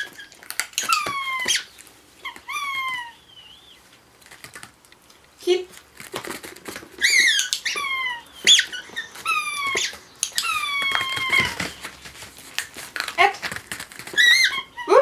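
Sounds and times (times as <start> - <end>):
rubber squeaky toy squeaking: 0.0 - 3.2, 6.9 - 11.9, 14.0 - 15.0.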